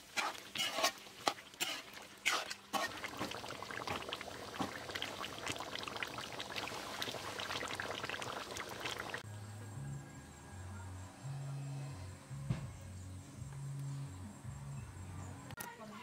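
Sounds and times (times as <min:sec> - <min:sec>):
curry bubbling in a pot: 0:00.0 - 0:09.2.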